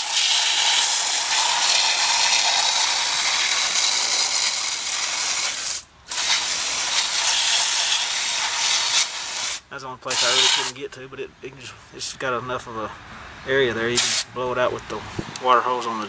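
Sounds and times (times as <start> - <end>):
hose spraying water: 0.0 - 10.7, 14.0 - 14.3.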